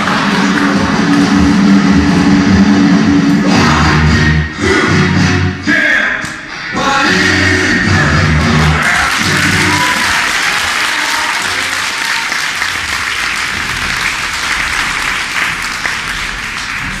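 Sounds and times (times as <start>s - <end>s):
audience applauding: 0.0s - 1.8s, 8.5s - 17.0s
music: 0.0s - 10.7s.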